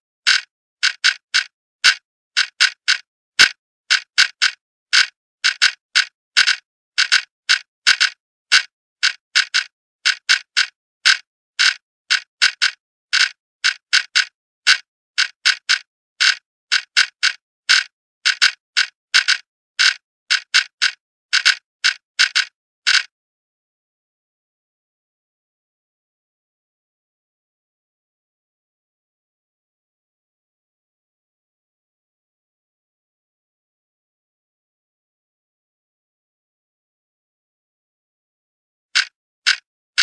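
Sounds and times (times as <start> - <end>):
clock ticking: 0.3 - 23.1, 39.0 - 40.0.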